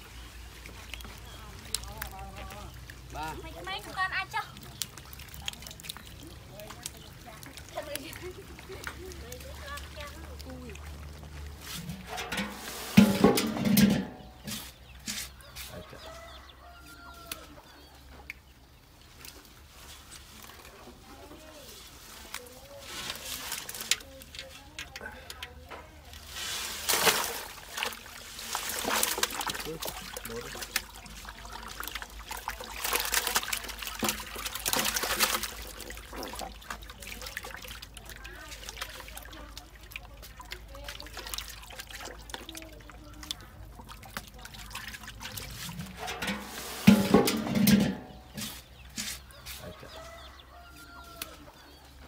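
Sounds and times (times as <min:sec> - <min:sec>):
small clicks and drips: 0:00.0 - 0:12.5, 0:17.1 - 0:20.8, 0:23.4 - 0:26.2, 0:28.8 - 0:46.4
water splashing and trickling: 0:00.0 - 0:52.0
chickens clucking: 0:35.6 - 0:52.0.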